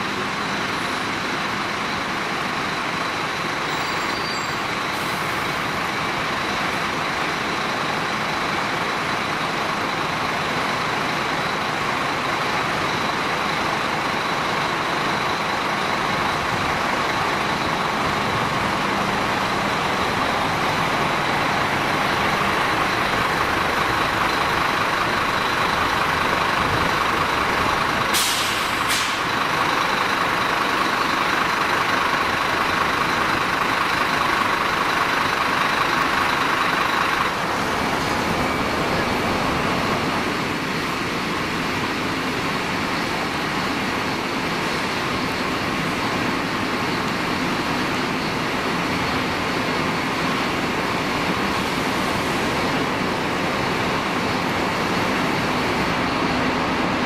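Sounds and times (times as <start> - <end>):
large vehicle engine running: 0.0 - 57.0
short air hisses: 28.1 - 29.3.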